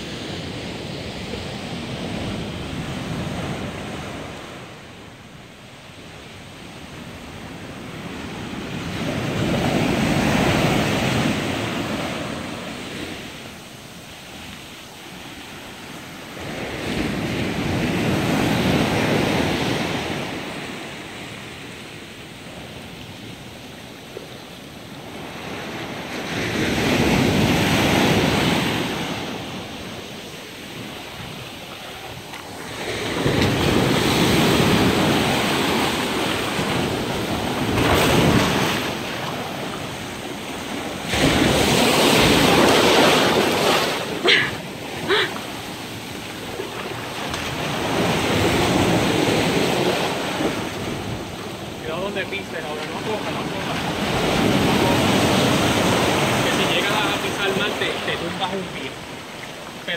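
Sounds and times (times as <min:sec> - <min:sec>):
sea surf breaking: 0:00.0 - 0:59.9
waves splashing against rocks: 0:24.4 - 0:59.9.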